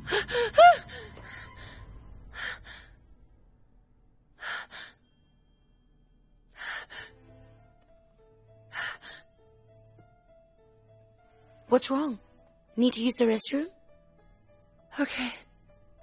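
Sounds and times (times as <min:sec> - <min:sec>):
soft sustained music notes: 0:00.0 - 0:16.0
woman breathing heavily: 0:04.4 - 0:05.0, 0:06.5 - 0:07.2.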